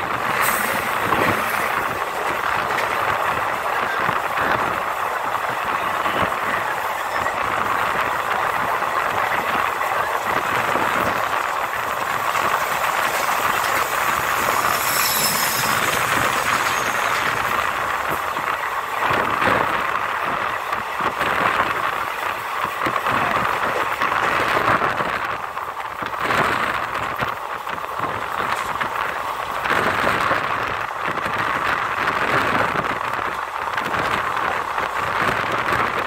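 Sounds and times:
wind rushing: 0.0 - 6.7, 7.4 - 22.4
freight train passing: 0.0 - 36.0
train wheels on rails: 0.0 - 36.0.

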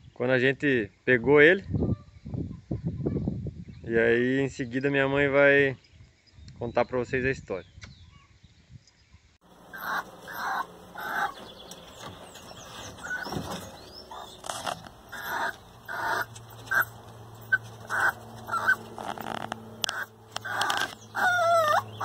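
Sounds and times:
small birds chirping: 4.6 - 22.0
chickens clucking: 9.5 - 22.0.

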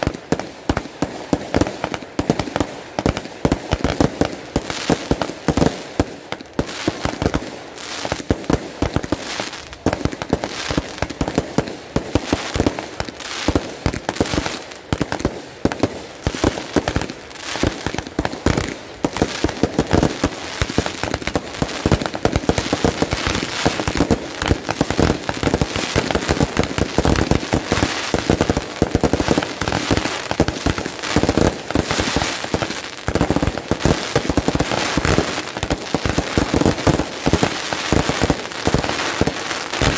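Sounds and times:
fireworks bangs and crackling: 0.0 - 39.9.

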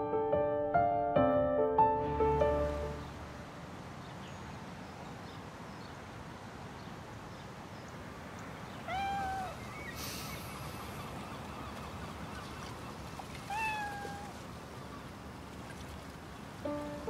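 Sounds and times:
drawn-out bird call: 8.6 - 15.2
faint bird chirps: 8.7 - 12.8.

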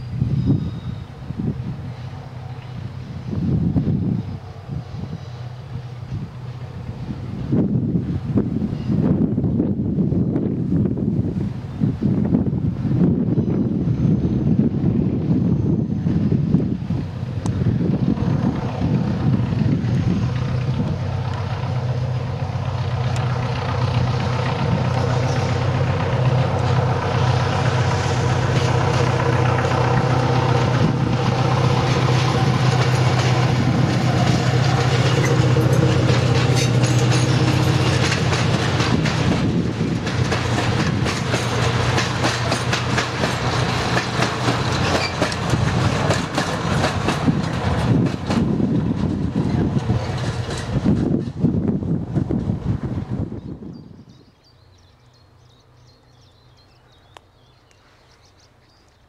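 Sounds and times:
diesel locomotive engine drone: 0.0 - 59.0
train wheels clicking over rail joints: 16.5 - 53.0.

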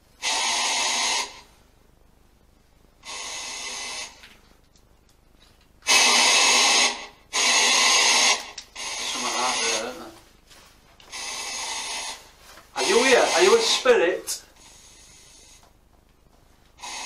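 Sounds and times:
spirit box static bursts: 0.0 - 1.6, 3.0 - 4.5, 5.7 - 10.2, 11.0 - 15.7, 16.7 - 17.0.

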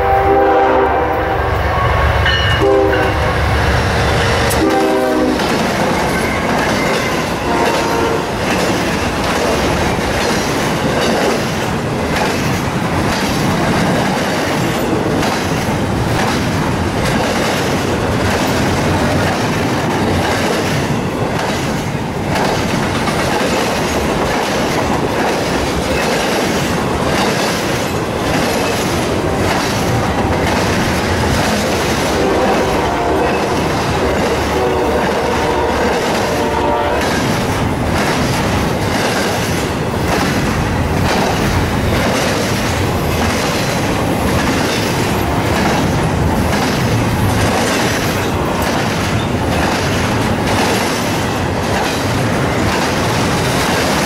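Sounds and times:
held multi-pitch horn tone: 0.0 - 3.6, 4.5 - 5.4, 7.4 - 8.3, 32.2 - 33.7, 34.3 - 37.0
freight train rumbling past: 0.0 - 54.0
wheels clacking over rails: 5.4 - 54.0.

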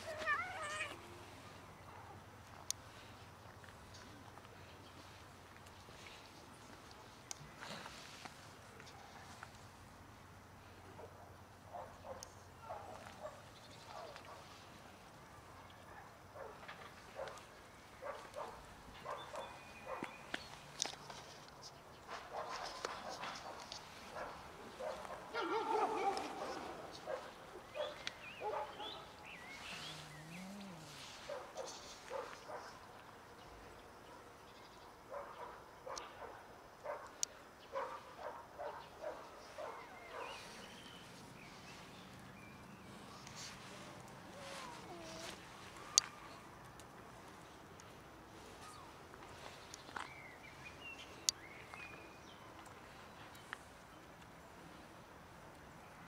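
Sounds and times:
cats meowing: 0.0 - 1.3
dog barking: 11.0 - 14.5, 15.9 - 16.6, 17.2 - 17.4, 18.0 - 20.1, 22.3 - 29.2, 31.3 - 32.8, 35.1 - 37.1, 37.7 - 40.5.

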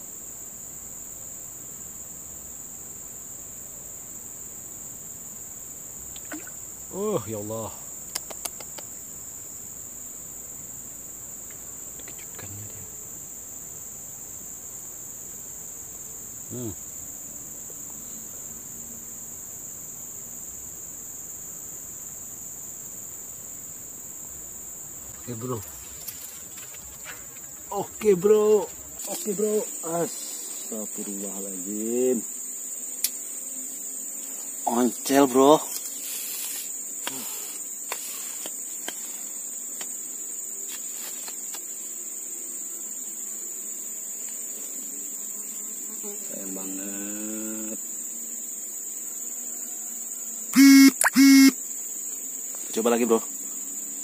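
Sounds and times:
crickets chirring: 0.0 - 54.0
insect chorus drone: 0.0 - 54.0
person murmuring: 12.0 - 12.9, 16.5 - 16.8.

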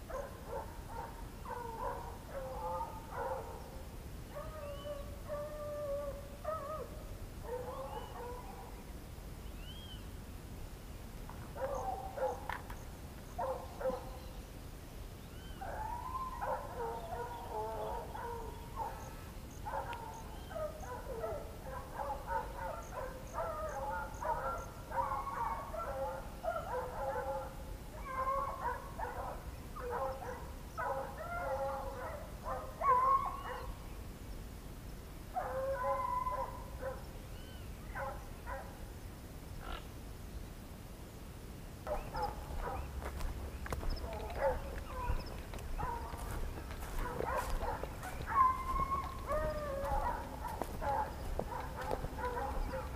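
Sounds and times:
dogs whining and yelping: 43.8 - 52.9.

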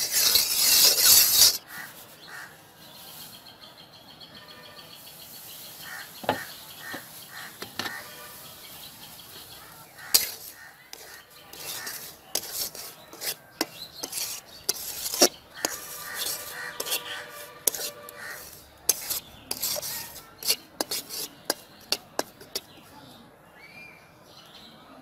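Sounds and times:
metal spatula scraping a pan: 0.0 - 2.4, 6.9 - 8.7, 9.6 - 22.9.

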